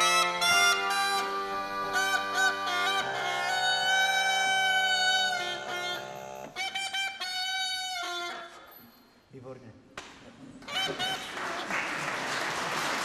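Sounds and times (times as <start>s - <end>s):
wooden wind instrument melody: 0.0s - 9.2s, 10.6s - 11.6s.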